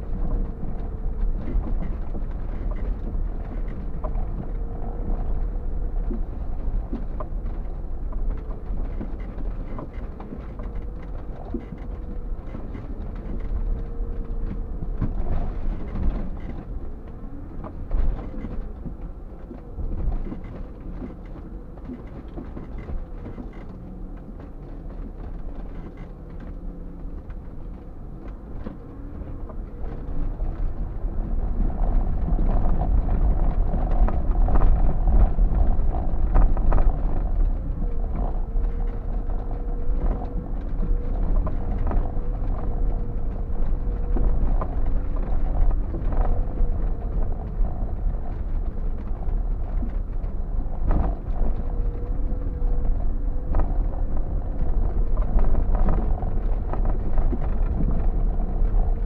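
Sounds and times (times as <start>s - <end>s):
engine and tyre rumble: 0.0s - 59.0s
vehicle body creaks and knocks: 0.1s - 59.0s.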